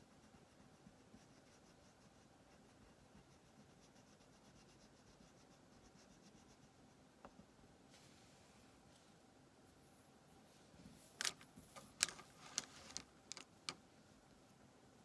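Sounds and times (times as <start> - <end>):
crayon scribbling on paper: 0.0 - 7.0.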